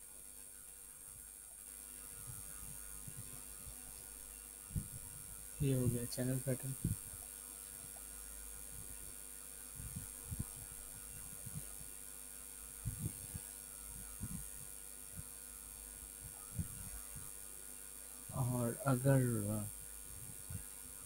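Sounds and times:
steady electrical hum: 0:00.0 - 0:21.0
soft low thumps: 0:04.7 - 0:06.0, 0:09.7 - 0:11.9, 0:12.8 - 0:15.4, 0:16.1 - 0:17.4.

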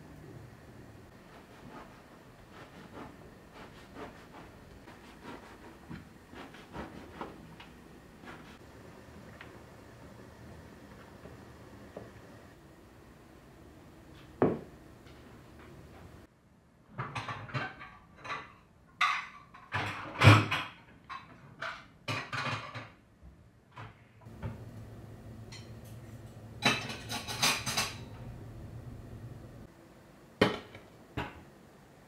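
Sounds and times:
dishes and cutlery clattering: 0:17.0 - 0:23.0, 0:25.5 - 0:26.0, 0:26.6 - 0:28.2
low steady hum: 0:24.2 - 0:32.0.

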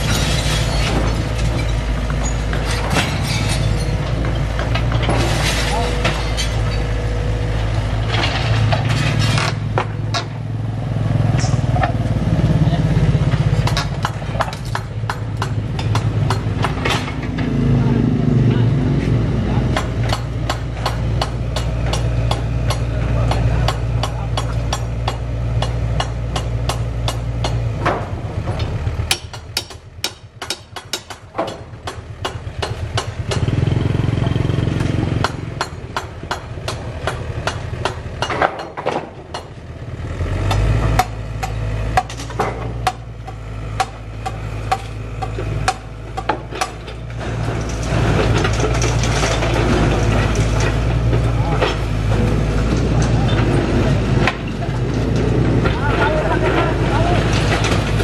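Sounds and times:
debris knocking and clattering: 0:00.0 - 0:06.9, 0:44.7 - 0:58.0
diesel engine running: 0:00.0 - 0:58.0.

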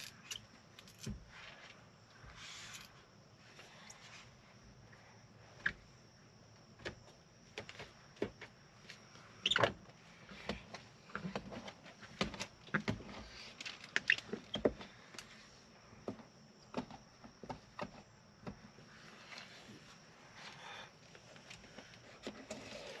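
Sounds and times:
squeegee scraping and squeaking on glass: 0:22.4 - 0:23.0.

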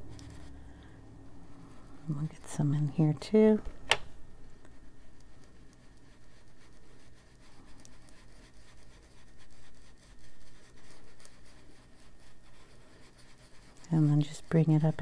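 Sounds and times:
tool rubbing on paper: 0:04.7 - 0:15.0.

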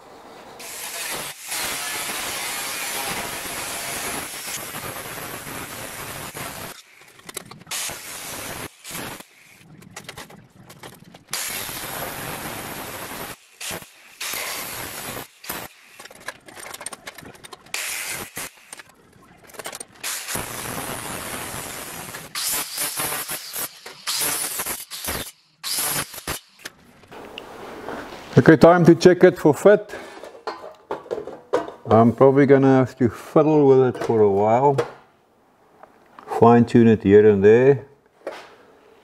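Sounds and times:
angle grinder cutting steel: 0:00.6 - 0:07.1, 0:07.7 - 0:09.6, 0:11.3 - 0:16.2, 0:17.7 - 0:18.8, 0:20.0 - 0:26.7.

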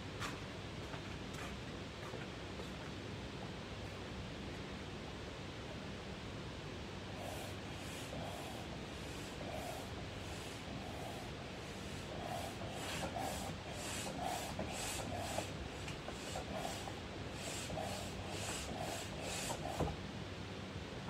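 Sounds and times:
hand air pump strokes: 0:07.2 - 0:20.0.

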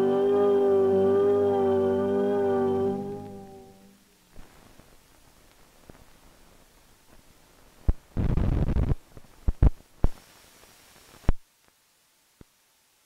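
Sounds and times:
film soundtrack pops and clicks: 0:07.8 - 0:10.2.

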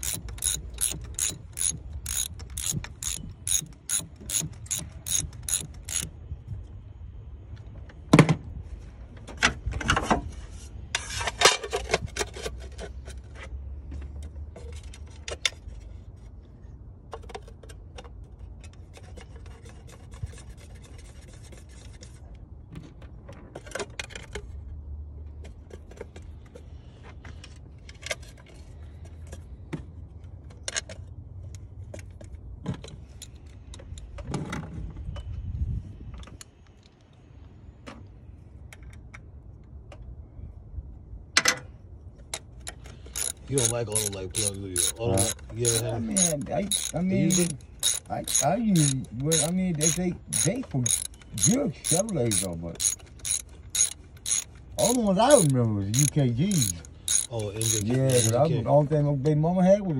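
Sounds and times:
clicks and rattling: 0:00.0 - 0:06.1, 0:42.6 - 0:58.5
socket ratchet clicking: 0:00.0 - 0:06.1, 0:43.1 - 0:58.5
tools scraping on engine: 0:00.0 - 0:06.2, 0:10.3 - 0:16.4, 0:17.3 - 0:22.5, 0:42.5 - 0:58.6.

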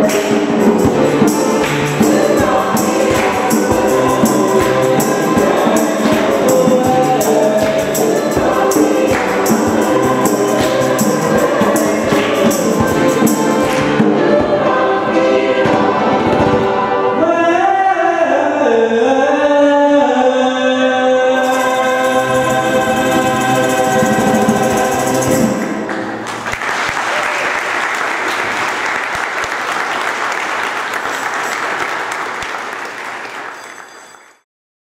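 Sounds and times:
choir singing: 0:00.0 - 0:26.2
audience applause: 0:25.6 - 0:34.3.

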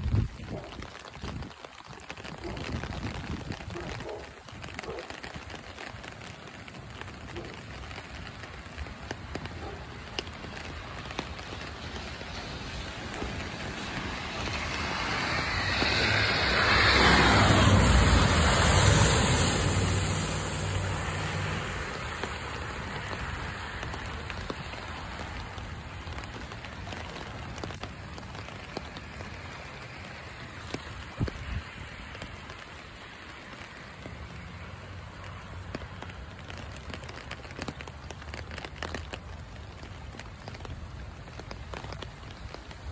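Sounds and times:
rain on water: 0:00.0 - 0:42.9
tyres throwing water spray: 0:08.0 - 0:32.5
car engine: 0:14.0 - 0:22.8.

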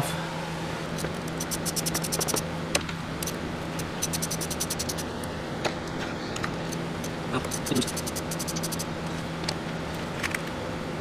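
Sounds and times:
ratchet wrench clicking: 0:01.0 - 0:02.4, 0:03.2 - 0:05.1, 0:06.7 - 0:08.9.

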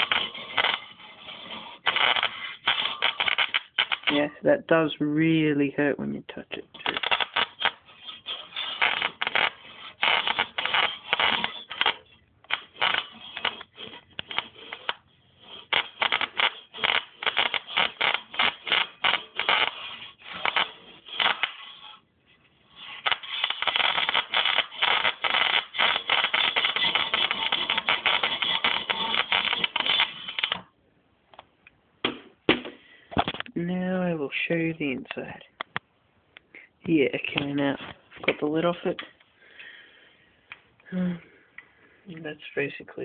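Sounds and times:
electric sparks crackling: 0:00.0 - 0:04.4, 0:06.7 - 0:22.0, 0:22.7 - 0:30.7.

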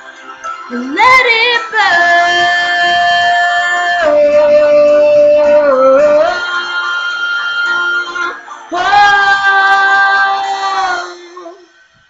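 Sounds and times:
woman singing long notes: 0:00.7 - 0:11.8.

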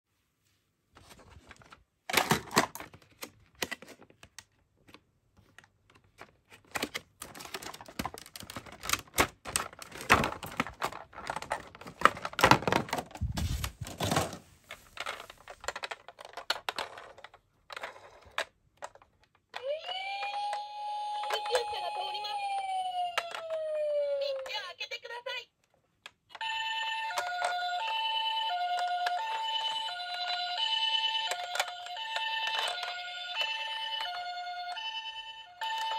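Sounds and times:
toy electronic siren: 0:19.6 - 0:24.5, 0:26.4 - 0:35.9.

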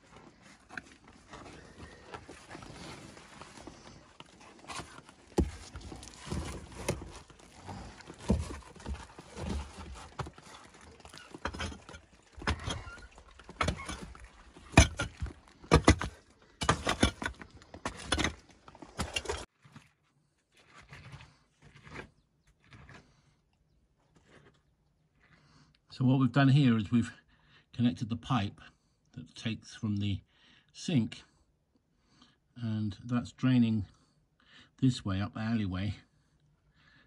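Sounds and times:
metal tool digging stony earth: 0:00.0 - 0:20.0, 0:20.6 - 0:23.3
stones shifting: 0:00.0 - 0:20.0, 0:20.6 - 0:23.3.

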